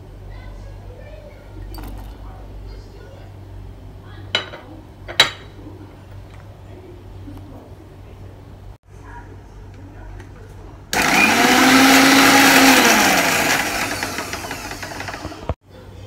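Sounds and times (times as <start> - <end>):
electric mixer grinder motor: 10.9 - 15.6.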